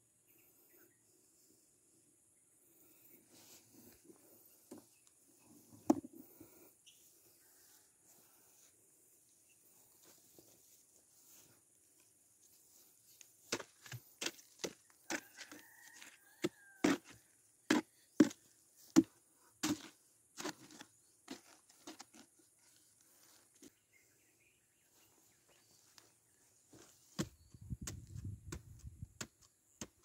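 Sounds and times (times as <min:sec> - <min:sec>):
tool chopping rotten wood: 0:17.7 - 0:20.8.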